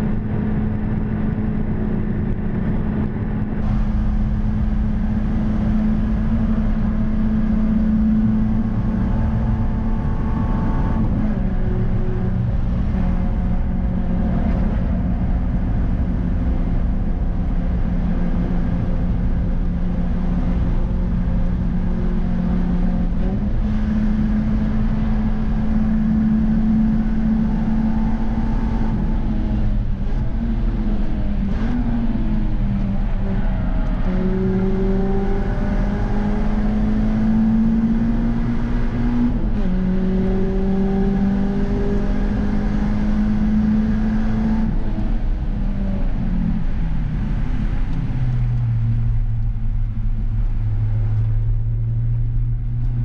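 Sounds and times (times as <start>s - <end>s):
car engine at high revs: 0.0s - 53.0s.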